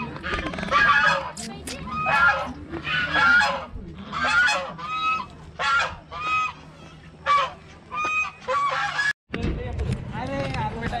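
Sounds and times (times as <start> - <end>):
geese honking: 1.9 - 9.2.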